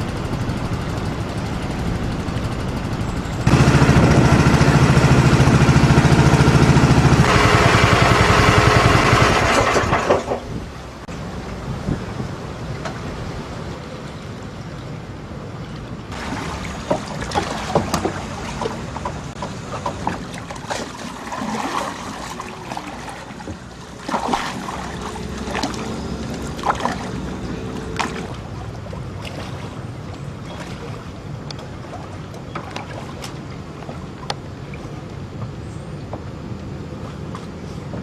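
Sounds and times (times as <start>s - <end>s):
river water washing: 3.4s - 35.3s
wind on microphone: 11.6s - 12.4s.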